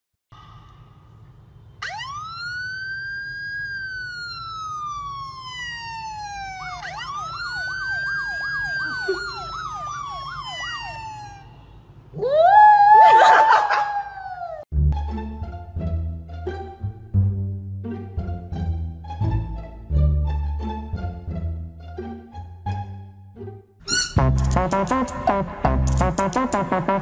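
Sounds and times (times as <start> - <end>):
siren wailing from a phone: 1.8 - 13.8
dog howling: 12.2 - 14.6.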